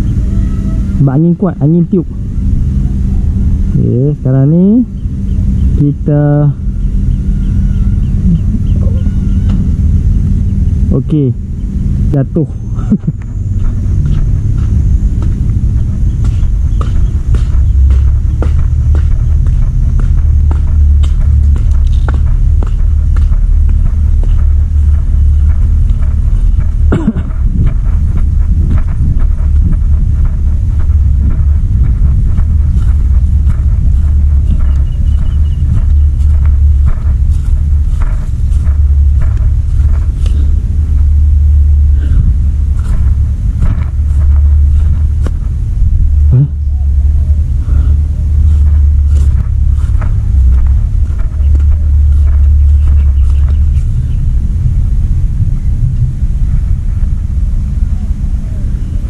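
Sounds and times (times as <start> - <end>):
wind buffeting microphone: 0.0 - 59.0
faint crackles: 12.7 - 59.0
light footsteps: 12.9 - 56.6.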